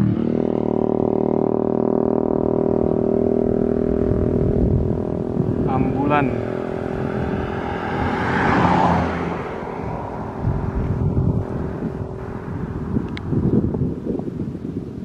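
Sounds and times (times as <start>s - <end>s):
car driving past: 4.6s - 13.1s.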